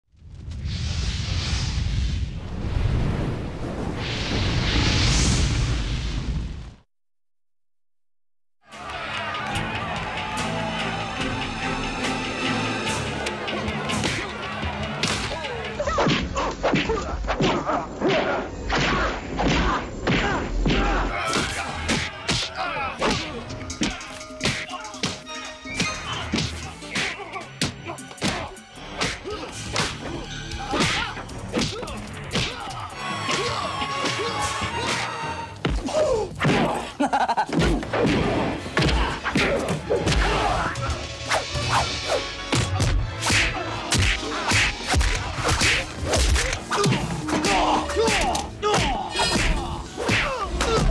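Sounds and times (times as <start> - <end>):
grunts and shouts: 15.3 - 25.0, 26.0 - 37.6, 46.4 - 50.9
punch and kick hits: 42.5 - 50.9.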